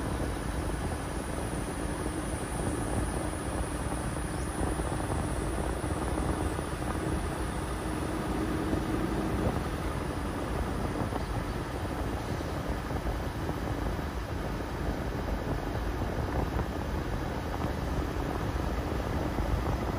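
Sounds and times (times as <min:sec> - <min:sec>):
faint hum: 0:00.0 - 0:19.9
road and engine noise in car: 0:00.0 - 0:19.9.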